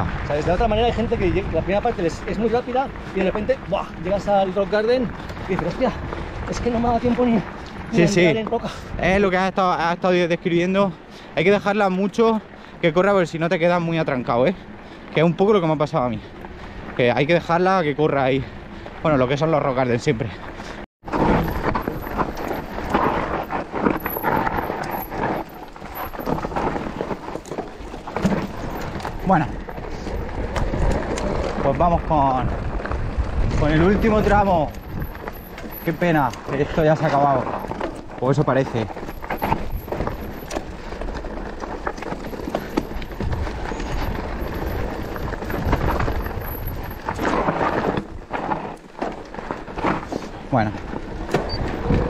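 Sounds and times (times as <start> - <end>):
bike tyres rolling on dirt: 0.0 - 52.0
bike knocks and rattles: 21.0 - 52.0.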